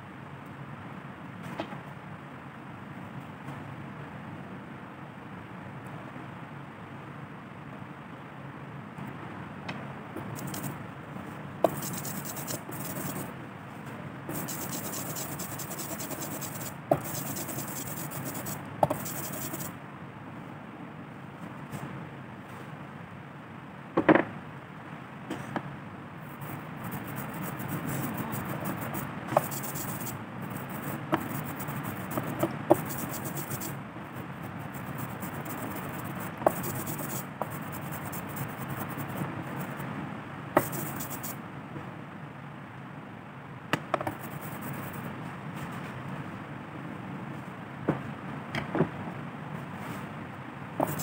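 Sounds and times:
brayer rolling through sticky ink: 10.2s - 10.7s, 11.6s - 13.3s, 14.3s - 19.7s, 26.3s - 39.8s, 40.6s - 41.3s, 50.8s - 51.0s.

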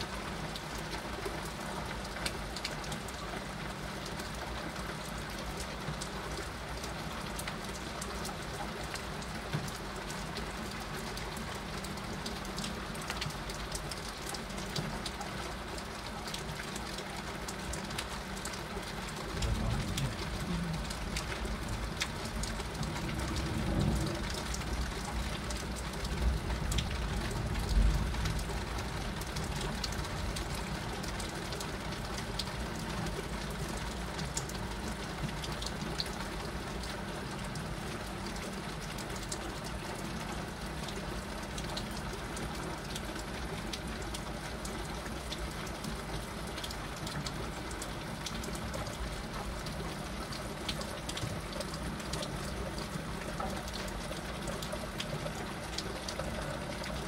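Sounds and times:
heavy rain pouring: 0.0s - 57.0s
raindrops ticking: 0.0s - 57.0s
low rumble: 19.4s - 21.8s, 22.6s - 25.2s.

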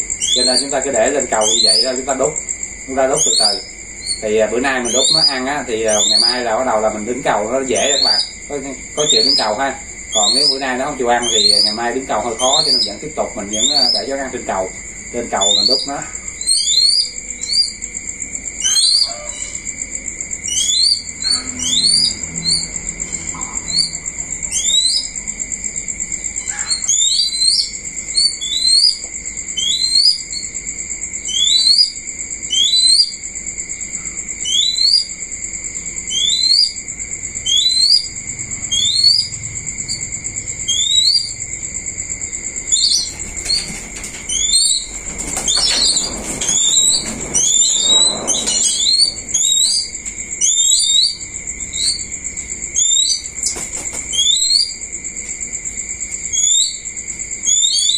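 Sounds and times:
bird chirping: 0.0s - 25.4s, 26.1s - 35.2s, 35.8s - 54.8s, 56.2s - 57.9s
high-pitched drone: 20.6s - 25.1s
rustling and flapping: 43.0s - 49.6s, 53.4s - 54.2s.

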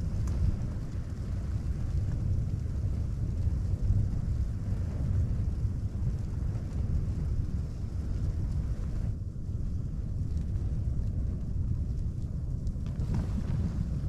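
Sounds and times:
strong wind buffeting tent: 0.0s - 14.0s.

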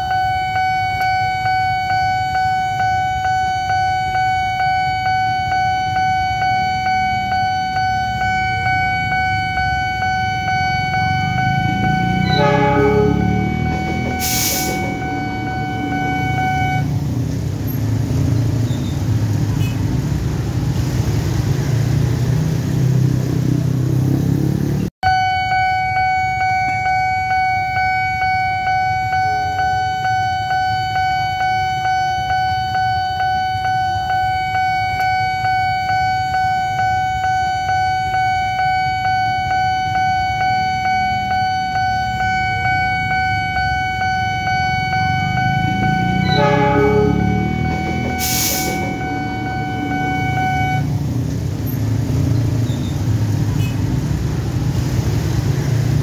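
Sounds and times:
crossing warning bell: 0.0s - 18.6s, 25.0s - 52.6s
train rumbling past: 11.2s - 18.6s, 45.2s - 52.3s.

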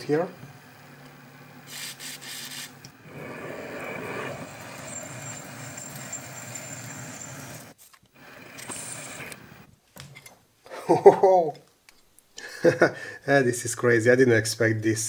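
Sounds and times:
high whine: 0.0s - 9.7s
aerosol spray hiss: 1.6s - 2.8s
drill press cutting metal: 1.6s - 9.7s.

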